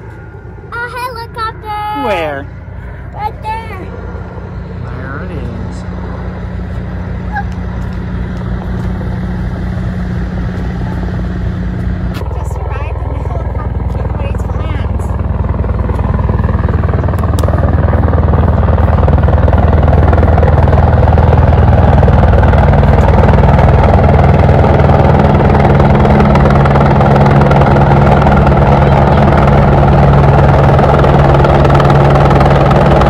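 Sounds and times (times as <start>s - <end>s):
helicopter rotor beating: 0.0s - 33.0s.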